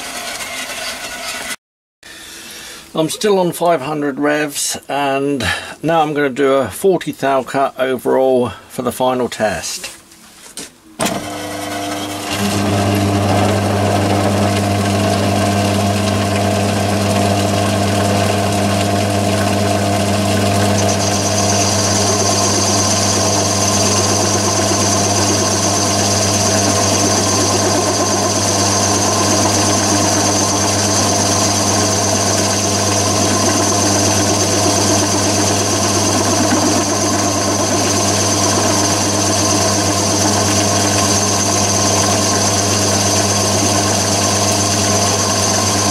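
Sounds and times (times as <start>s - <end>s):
lathe motor and spindle hum: 11.0s - 45.9s
cutting tool chatter: 17.3s - 45.9s.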